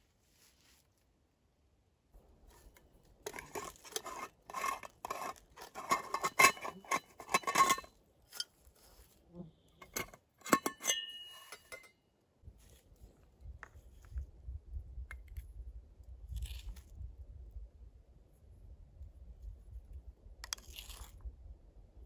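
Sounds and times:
metal threads scraping: 3.2 - 8.5, 9.8 - 11.9.

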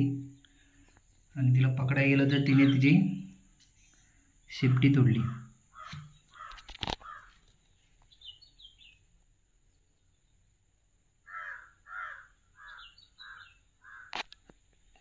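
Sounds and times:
small bird chirping: 0.0 - 15.0
crow cawing: 5.2 - 7.4, 11.2 - 14.2.

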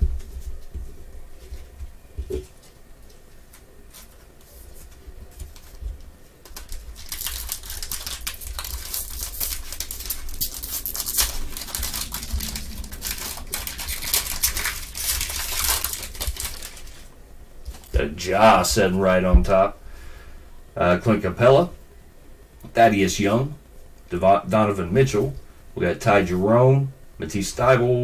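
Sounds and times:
foil wrapper crinkling: 3.5 - 18.0.

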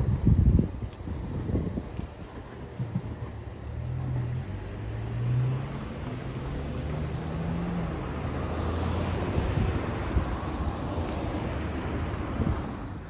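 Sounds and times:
wind noise on microphone: 0.0 - 4.6, 7.6 - 13.0
vehicle engine pulling away: 3.3 - 12.8.

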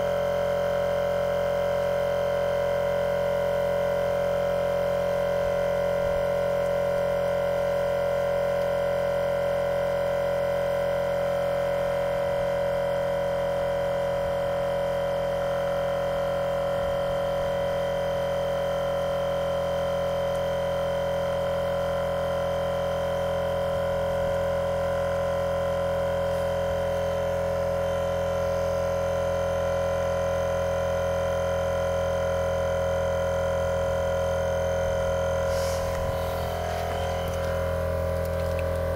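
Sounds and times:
tyre compressor droning: 33.6 - 38.9.

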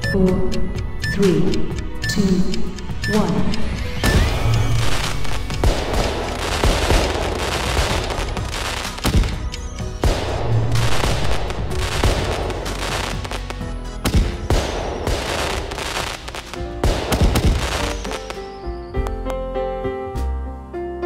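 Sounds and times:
music: 0.0 - 21.0
fireworks crackling and banging: 4.1 - 18.6
sharp firework booms: 5.6 - 13.4, 14.0 - 18.1.

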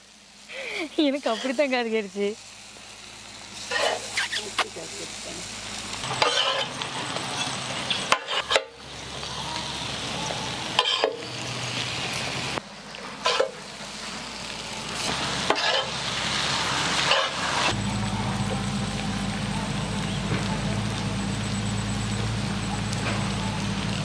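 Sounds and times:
noodles sizzling on griddle: 0.0 - 24.0
metal spatulas scraping griddle: 1.2 - 1.6, 3.6 - 4.6, 6.0 - 8.8, 10.8 - 11.3, 13.2 - 13.6, 15.0 - 17.7.

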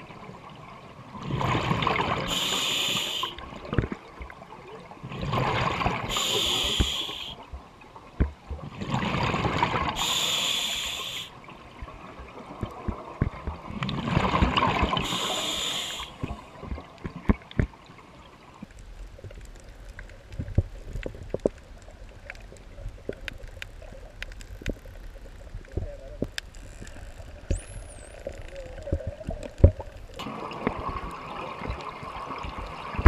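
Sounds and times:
diver breathing through regulator: 2.3 - 3.4, 6.1 - 7.4, 10.0 - 11.4, 15.0 - 16.4.

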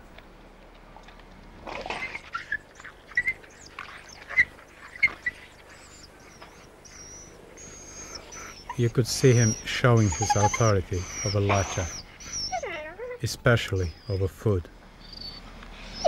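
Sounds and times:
wolf snarling: 1.7 - 14.1, 15.1 - 16.0
wolf yelping and squealing: 1.7 - 14.3, 15.0 - 16.0.

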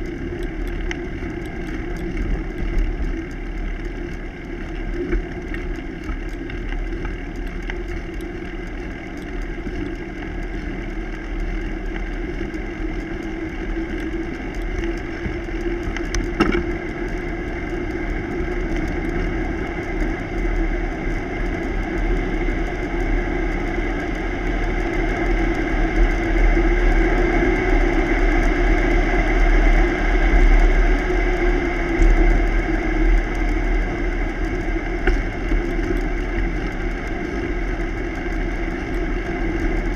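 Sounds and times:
bicycle tyre road noise: 0.0 - 39.9
wind rumbling on microphone: 0.0 - 39.9.

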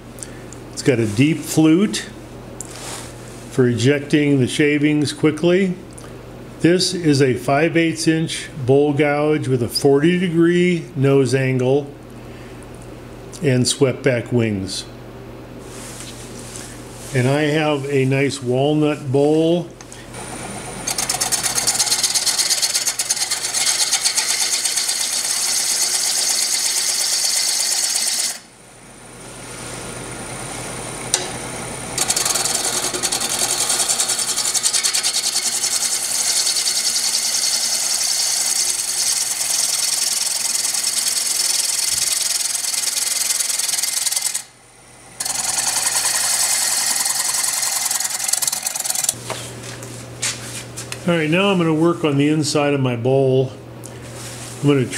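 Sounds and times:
lathe gouge rasping wood: 20.2 - 28.4, 31.8 - 44.5, 45.2 - 49.2.

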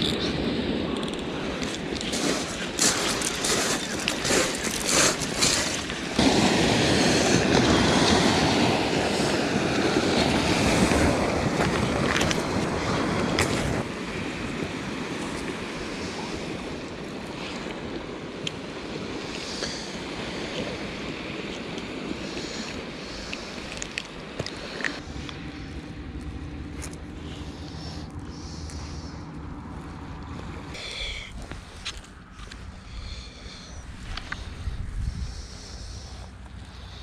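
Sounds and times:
wind on microphone: 0.0 - 26.0, 27.2 - 37.0
surf: 0.2 - 25.0.

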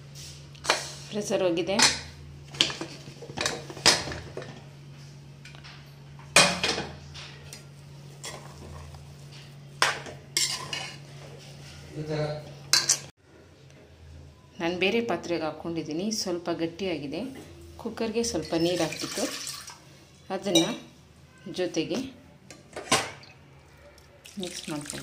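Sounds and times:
spatula scraping a pot: 10.4 - 11.8.

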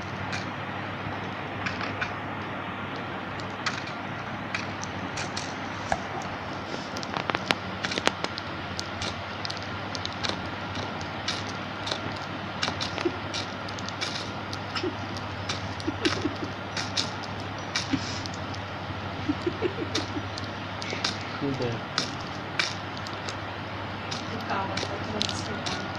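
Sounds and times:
steady low hum: 0.0 - 25.9
budgie pecking clicks: 3.4 - 6.3, 7.0 - 23.5, 24.1 - 25.9.

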